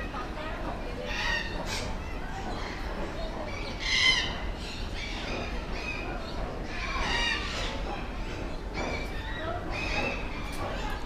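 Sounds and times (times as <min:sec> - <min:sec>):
parrots squawking: 0:01.0 - 0:02.8, 0:03.5 - 0:05.2, 0:06.7 - 0:07.9.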